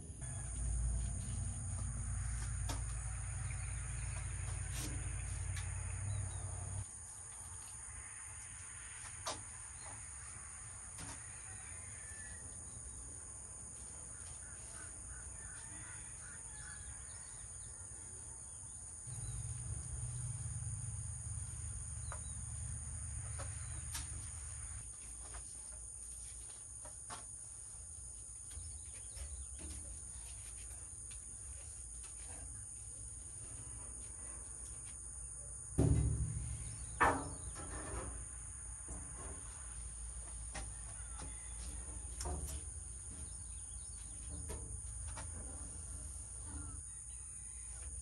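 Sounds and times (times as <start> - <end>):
low rumble: 0.0 - 6.8, 19.1 - 24.8, 35.8 - 37.6
birds calling: 19.1 - 24.8.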